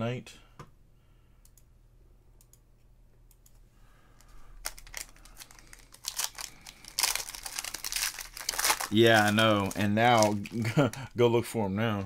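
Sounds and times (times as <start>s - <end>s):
foil wrapper crinkling and tearing: 4.6s - 11.1s.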